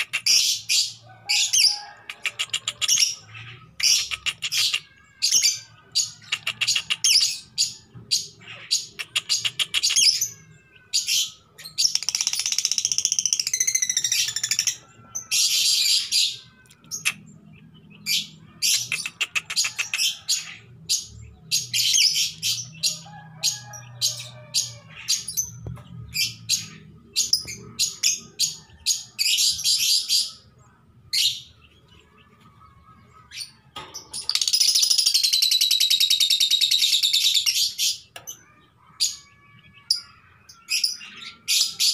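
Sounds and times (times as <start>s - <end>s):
bird chattering: 2.1s - 5.0s, 18.7s - 20.2s.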